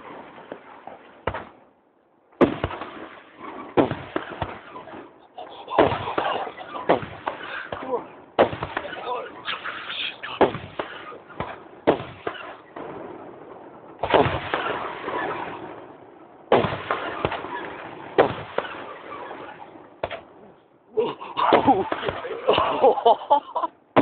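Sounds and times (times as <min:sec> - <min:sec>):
firework shells bursting: 0:02.4 - 0:20.4, 0:21.5 - 0:22.6.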